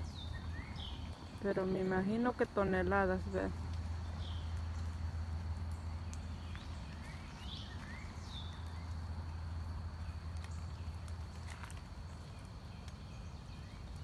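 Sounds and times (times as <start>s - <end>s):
bird chirps: 0.0s - 2.0s, 5.7s - 11.0s.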